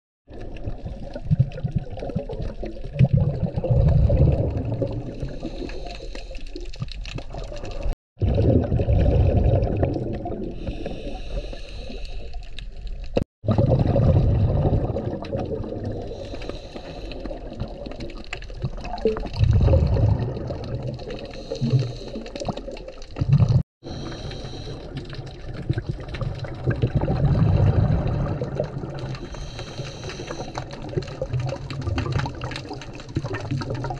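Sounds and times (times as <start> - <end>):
regulator bubbles exhaled underwater: 0.3 - 33.9
steady underwater hiss: 10.6 - 12.5, 16.1 - 17.5, 23.9 - 25.1, 29.2 - 30.6.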